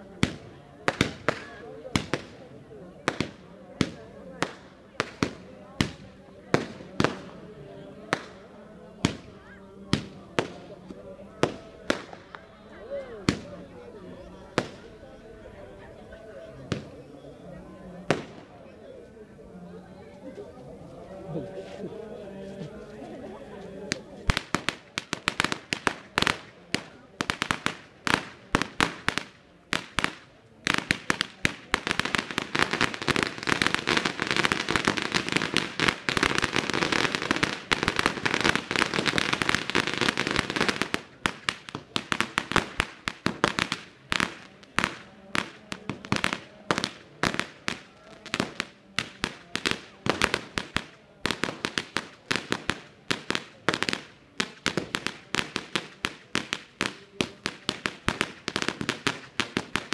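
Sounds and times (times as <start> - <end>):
firecrackers banging: 0.0 - 12.6, 14.5 - 14.9, 18.0 - 18.5, 23.8 - 59.9.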